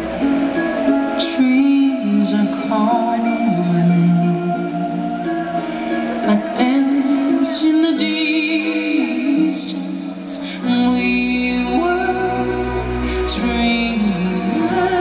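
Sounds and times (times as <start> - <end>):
music with singing over loudspeakers: 0.0 - 15.0
deep bass: 10.7 - 15.0.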